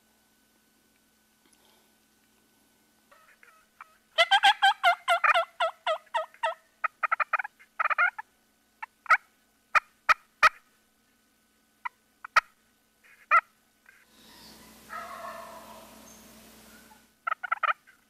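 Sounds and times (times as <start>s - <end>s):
turkey calling: 3.1s - 10.7s, 11.8s - 18.0s.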